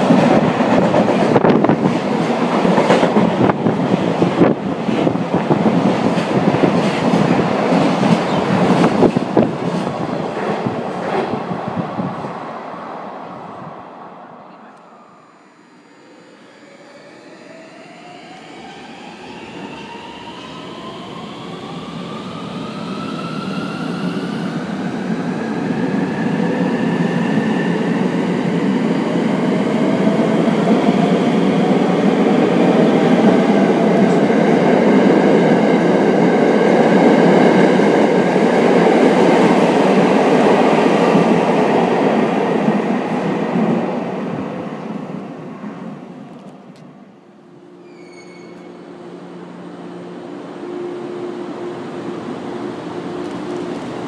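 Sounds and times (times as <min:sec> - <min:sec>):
electric train motor whine: 0:14.8 - 0:20.8.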